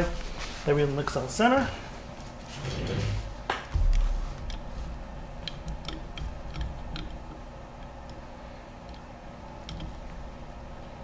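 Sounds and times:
faint steady hum: 0.0 - 11.0
metal fixture clicks and taps: 5.4 - 8.2.

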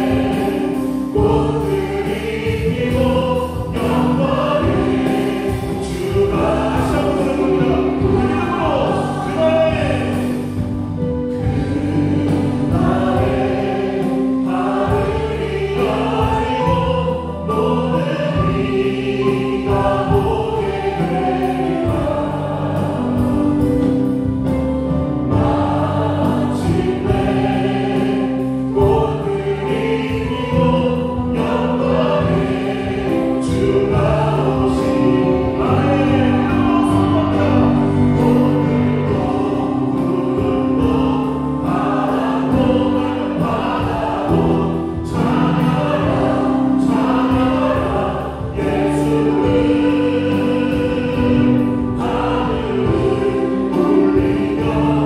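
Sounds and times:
group of voices singing: 0.0 - 55.0
keyboard chords: 0.0 - 55.0.

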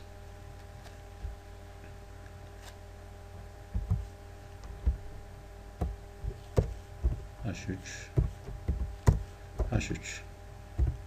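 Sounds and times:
electrical hum: 0.0 - 11.0
muffled thumps: 3.7 - 10.1, 10.7 - 11.0.

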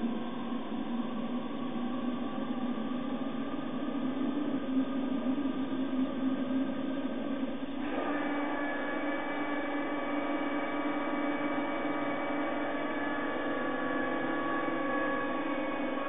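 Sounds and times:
model locomotive motor whine: 7.4 - 16.0.

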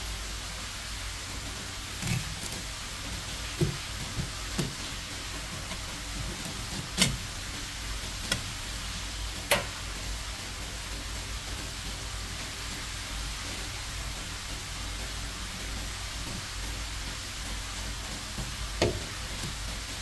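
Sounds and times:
steady hiss: 0.0 - 20.0
knife tapping on cutting board: 18.8 - 19.1.

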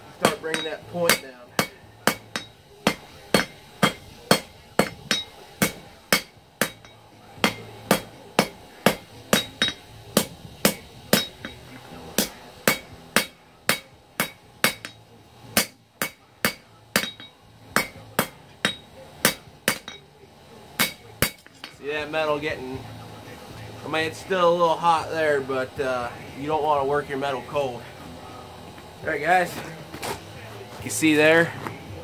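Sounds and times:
hammer striking steel on anvil: 0.1 - 22.1.

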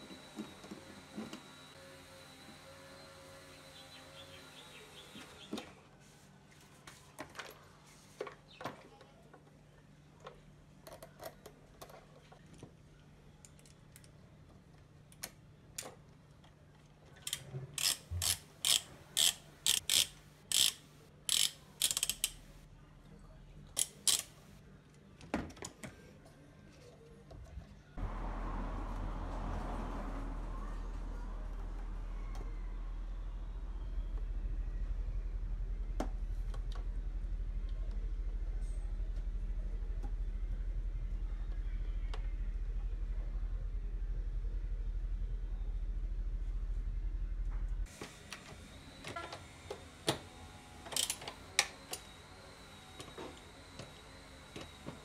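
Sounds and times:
socket ratchet clicking: 17.3 - 22.6, 23.8 - 24.4.

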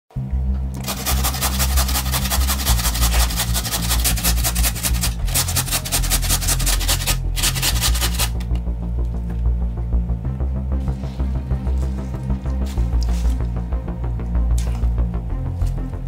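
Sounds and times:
low background music: 0.1 - 16.0
potatoes rasping on metal grater: 0.8 - 8.4.

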